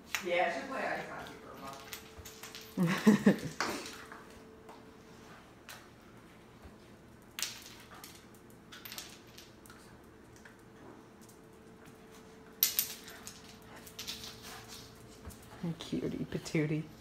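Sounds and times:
dog claws clicking on tile: 0:07.2 - 0:15.6.

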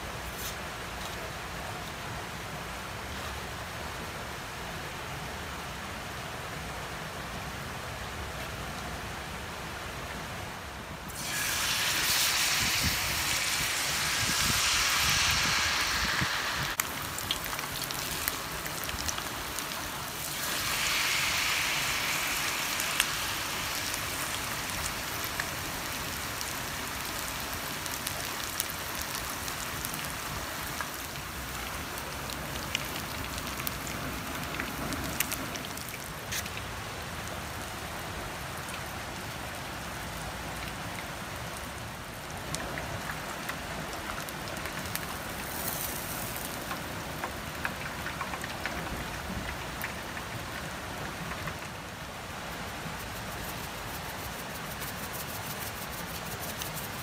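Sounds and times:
fish frying in hot oil: 0:11.1 - 0:36.4, 0:43.9 - 0:50.3, 0:53.0 - 0:57.0.

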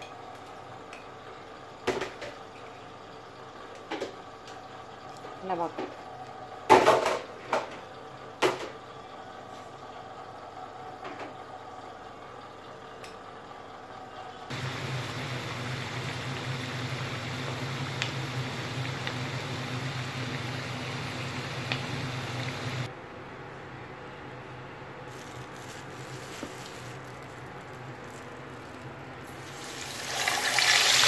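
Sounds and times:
potato wedges deep-frying in oil: 0:14.5 - 0:22.9, 0:26.4 - 0:31.0.

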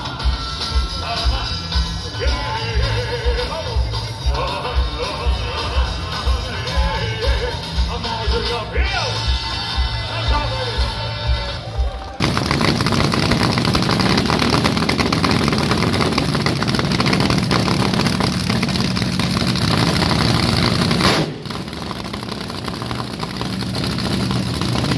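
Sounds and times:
race car engine revving: 0:10.9 - 0:24.9
engine burst: 0:11.7 - 0:24.9.

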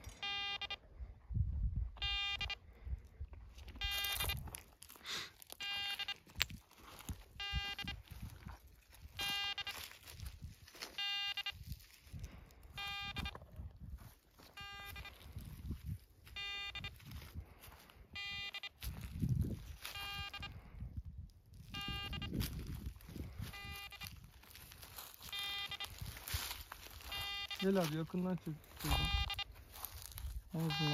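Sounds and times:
buzzy electronic beeps: 0:00.0 - 0:00.8, 0:02.0 - 0:02.6, 0:03.8 - 0:04.4, 0:09.0 - 0:10.2, 0:12.8 - 0:13.4, 0:14.6 - 0:15.4, 0:21.8 - 0:28.0, 0:28.8 - 0:30.9.

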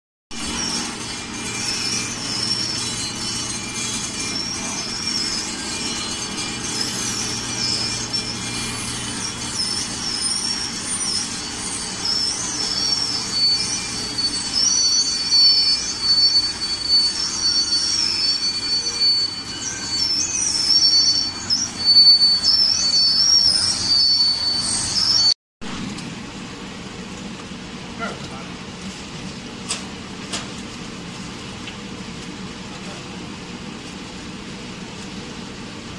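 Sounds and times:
wavering metallic squeal: 0:00.3 - 0:25.4
steady high whine: 0:00.3 - 0:35.9.

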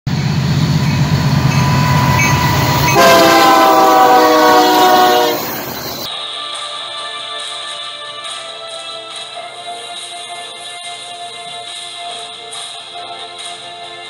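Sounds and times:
diesel locomotive rumble: 0:00.1 - 0:06.1
locomotive air horn: 0:00.2 - 0:06.1.

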